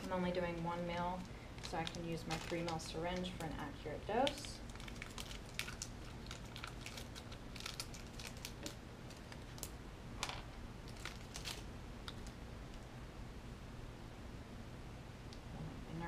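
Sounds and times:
packaging clicks and crinkles: 0.0 - 3.6, 4.2 - 9.8, 10.9 - 12.4.

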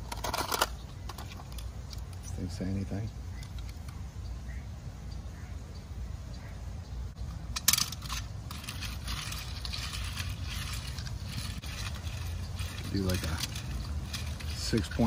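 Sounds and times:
low steady rumble: 0.0 - 15.0
toy scraping along glass: 8.0 - 15.0.

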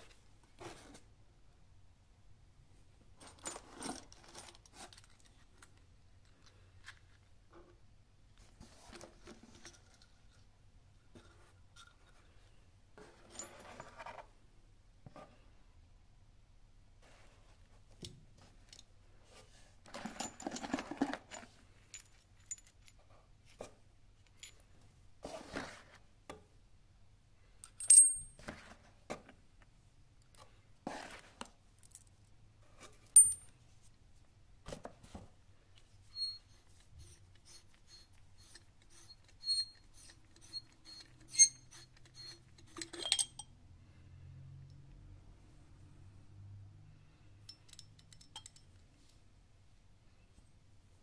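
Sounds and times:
metal fittings clinking: 27.6 - 28.3, 33.2 - 33.5, 37.4 - 43.5, 47.5 - 48.7.

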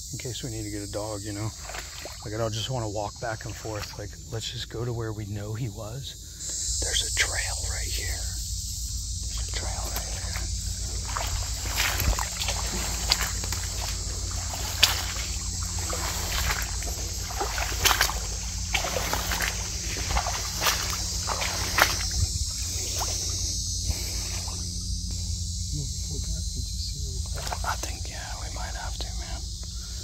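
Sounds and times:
background hiss: 0.0 - 30.0
footsteps splashing through water: 1.4 - 4.0, 9.2 - 25.1, 27.2 - 27.8.

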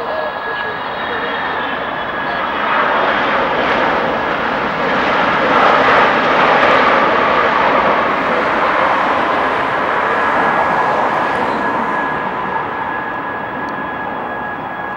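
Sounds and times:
faint whine: 0.0 - 3.3
jet engine rush: 0.0 - 14.9.

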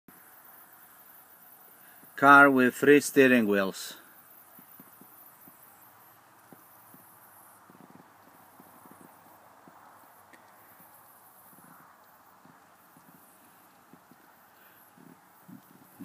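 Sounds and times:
faint hiss: 0.1 - 16.0.

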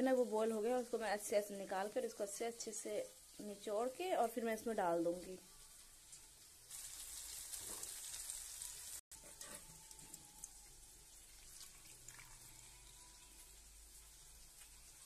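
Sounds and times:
vegetables sizzling in a wok: 0.0 - 15.0
wet squeezing sounds: 11.3 - 13.5.

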